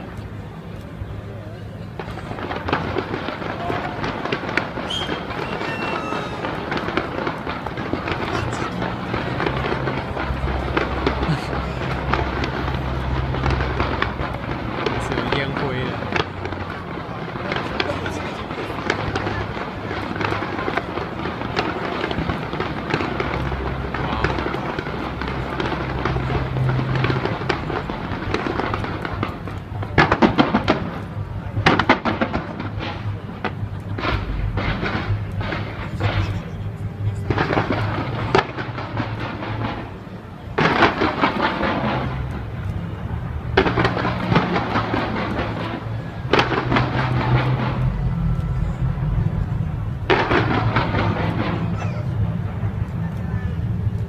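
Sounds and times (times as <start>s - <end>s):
steady low rumble: 0.0s - 30.0s, 30.7s - 54.0s
fireworks crackling and popping: 0.0s - 54.0s.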